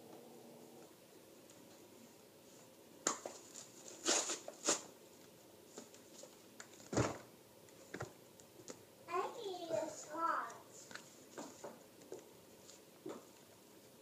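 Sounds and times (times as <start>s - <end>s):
paper pages rustling: 3.1s - 7.2s, 10.7s - 13.4s.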